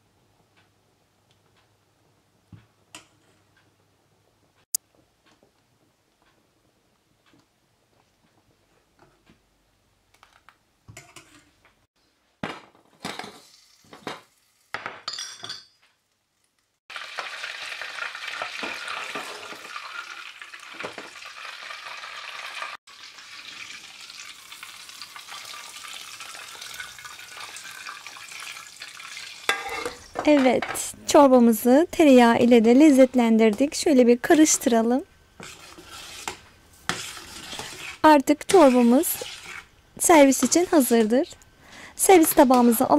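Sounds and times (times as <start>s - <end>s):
butter sizzling in a pan: 13.3s - 14.7s, 16.6s - 30.2s, 35.3s - 41.3s
metal spoon scraping steel pot: 29.5s - 30.1s, 35.4s - 39.7s.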